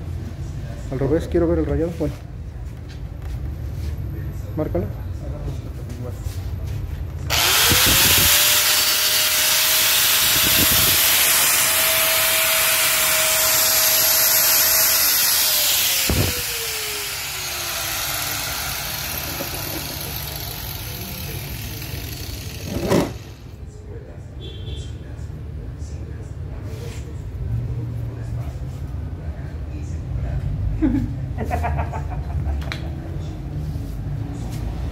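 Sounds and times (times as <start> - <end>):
angle grinder motor whine: 7.3 - 23.6
grinder disc cutting stone: 7.3 - 23.6.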